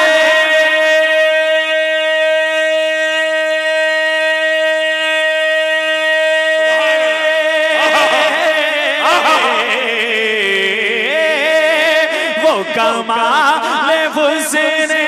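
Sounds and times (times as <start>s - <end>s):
man singing melismatic run: 6.7s - 15.0s.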